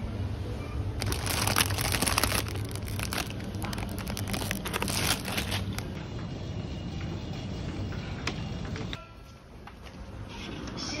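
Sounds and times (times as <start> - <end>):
foil bags crinkling: 1.0 - 6.0.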